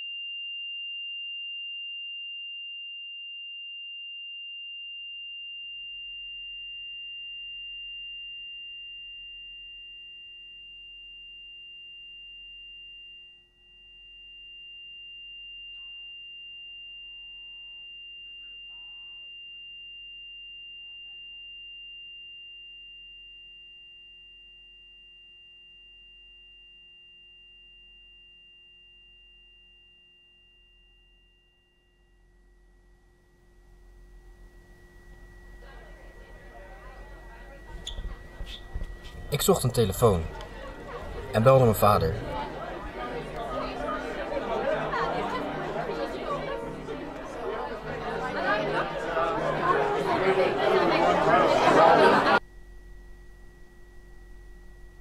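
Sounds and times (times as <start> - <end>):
high-pitched ringing tone: 0.0 - 55.0
faint wavering sounds: 30.4 - 41.4, 42.2 - 55.0
low hum: 30.4 - 41.4, 52.4 - 55.0.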